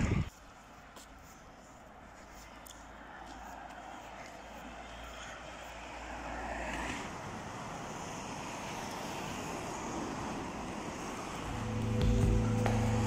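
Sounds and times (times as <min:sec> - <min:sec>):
street traffic noise: 0:00.0 - 0:13.0
bus approaching: 0:01.7 - 0:13.0.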